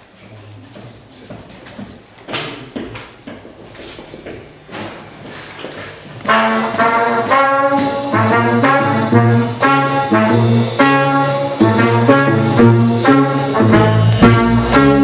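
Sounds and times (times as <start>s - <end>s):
drums: 4.6s - 15.0s
trumpet melody: 6.2s - 15.0s
upright bass: 6.4s - 15.0s
electric guitar: 6.6s - 15.0s.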